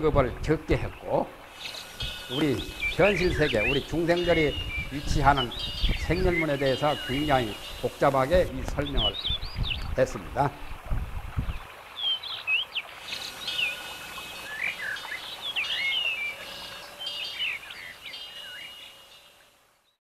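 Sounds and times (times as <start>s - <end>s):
light steady hiss: 0.0s - 20.0s
small birds chirping: 0.4s - 10.8s, 11.4s - 20.0s.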